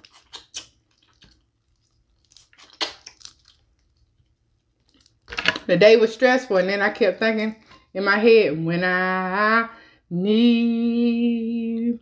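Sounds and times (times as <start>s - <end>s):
squishy lip smacks: 0.0s - 1.5s, 2.2s - 3.6s
wet chewing and sucking: 0.0s - 5.3s.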